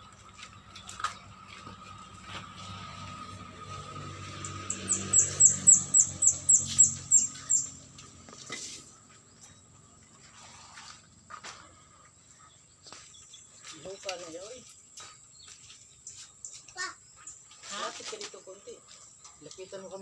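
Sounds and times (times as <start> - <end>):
bird chirping: 4.2 - 11.0, 11.6 - 20.0.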